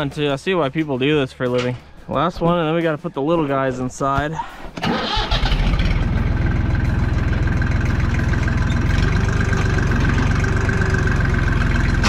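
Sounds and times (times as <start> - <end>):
tractor engine running: 4.8 - 12.0.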